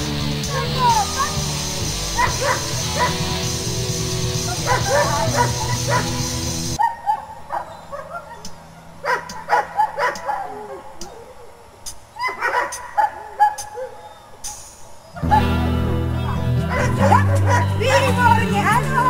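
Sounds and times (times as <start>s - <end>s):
background music: 0.0s - 6.8s, 14.6s - 19.0s
dog yipping and whining: 6.8s - 11.6s, 12.2s - 14.4s, 16.7s - 17.7s.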